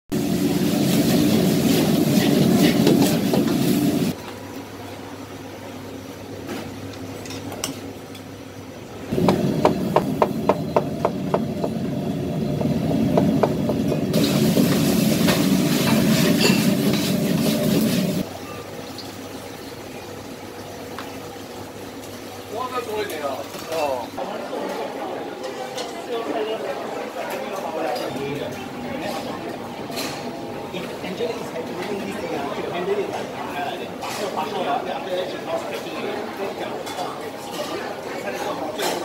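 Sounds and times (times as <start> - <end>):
food sizzling in wok: 0.1 - 4.2, 14.0 - 18.3
gas burner rushing: 0.2 - 4.2, 9.1 - 18.2.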